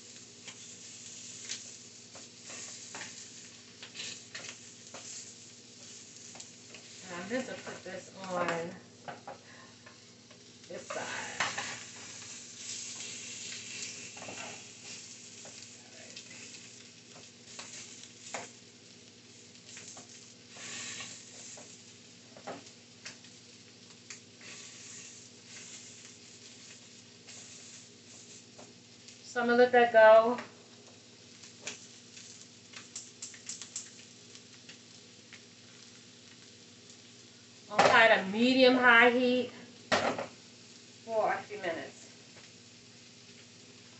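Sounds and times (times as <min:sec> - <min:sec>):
fish sizzling in a skillet: 0:00.0 - 0:43.9
spatula scraping and tapping pan: 0:01.4 - 0:03.2
oil pops and crackles: 0:11.3 - 0:24.6, 0:30.4 - 0:38.0.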